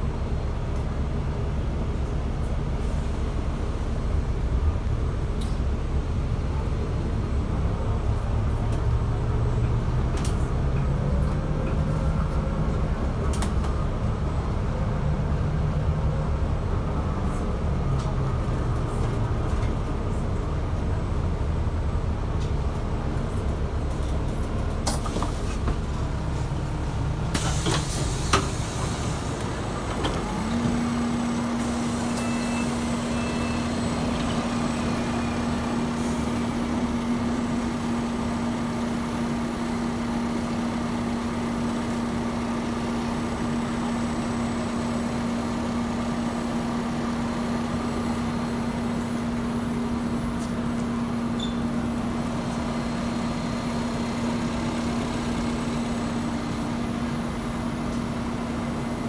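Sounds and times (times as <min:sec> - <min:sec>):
bus drive hum: 0:00.0 - 0:59.0
air hiss of bus doors opening: 0:27.3 - 0:29.5.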